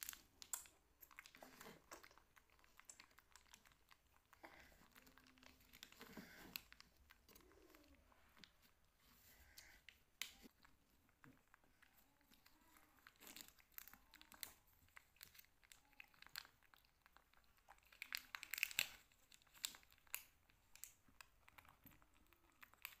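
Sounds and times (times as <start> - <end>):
plastic pouch crinkling: 9.6 - 23.0.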